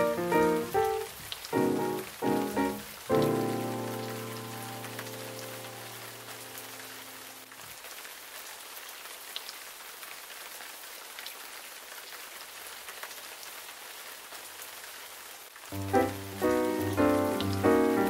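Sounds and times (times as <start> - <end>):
rain hiss: 0.0 - 18.0
soft background music chord: 15.8 - 18.0.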